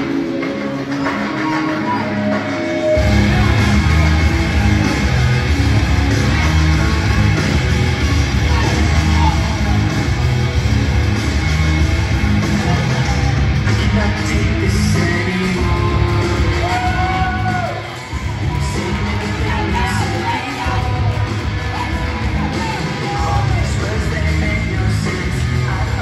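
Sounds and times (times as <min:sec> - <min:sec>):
hard rock music over speakers: 0:00.0 - 0:26.0
person singing: 0:12.6 - 0:17.8.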